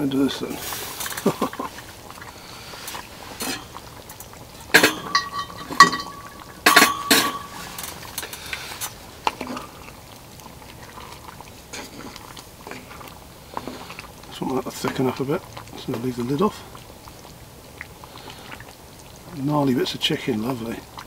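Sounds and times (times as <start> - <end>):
spatula scraping pot: 2.8 - 4.0, 4.6 - 10.0
cast iron cookware clanking: 2.8 - 9.8.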